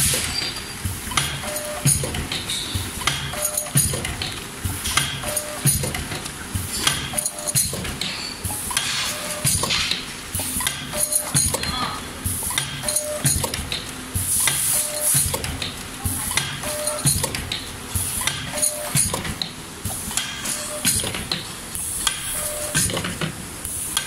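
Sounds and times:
packing machine clicking and knocking: 0.0s - 24.0s.

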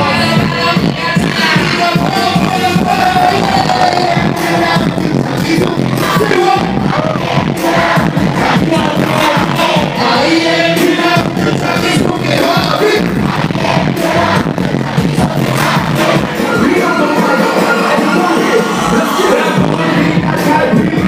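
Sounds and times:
live pop music with singer: 0.0s - 21.0s.

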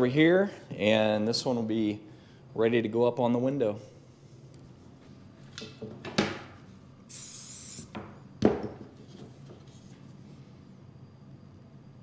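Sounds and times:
spray bottle hiss: 7.1s - 8.0s.

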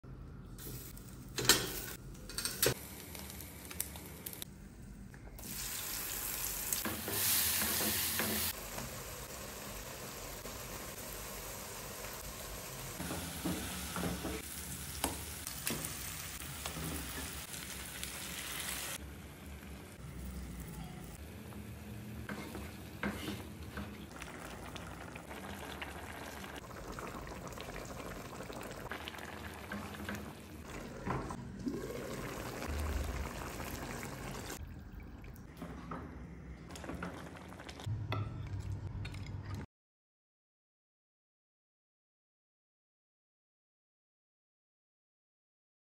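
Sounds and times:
sauce sizzling in a pan: 5.4s - 19.0s.

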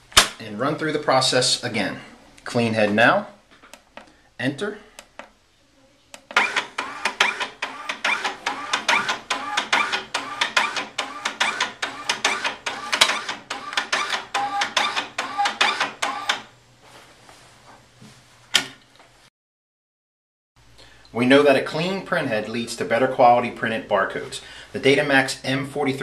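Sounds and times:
printer motor clicking pulses: 6.2s - 16.5s.

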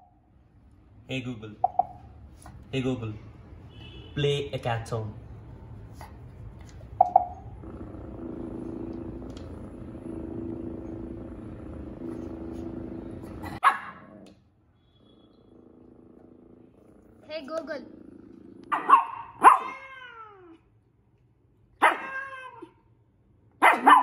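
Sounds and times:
low steady rumbling: 7.2s - 13.6s
small dog barking: 13.6s - 14.1s, 18.7s - 20.0s, 21.8s - 22.7s, 23.6s - 24.0s.

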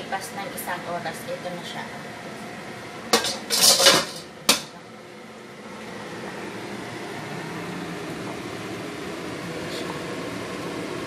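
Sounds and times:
steady hum: 0.0s - 11.0s
pot lid clattering: 3.1s - 4.7s.

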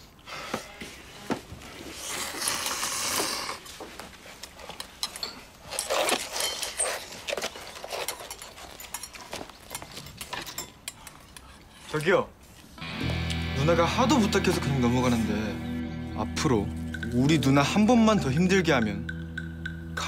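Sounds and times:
people slurping noodles: 1.7s - 3.7s
chopsticks and bowls clinking: 4.4s - 12.3s, 16.7s - 20.0s.

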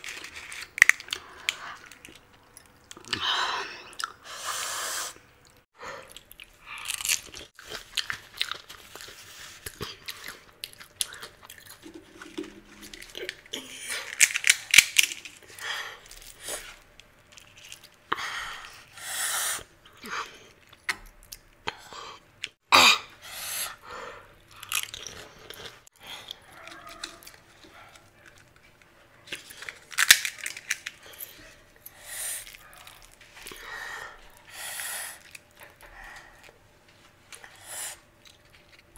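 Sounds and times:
crisp shells crunching in mouth: 0.0s - 3.2s, 5.5s - 18.0s, 24.5s - 31.4s, 32.3s - 33.6s.

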